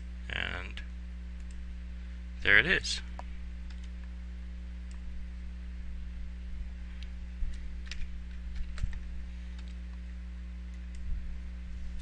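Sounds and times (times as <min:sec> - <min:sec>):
electrical mains hum: 0:00.0 - 0:12.0
sharp clicks: 0:01.4 - 0:01.6.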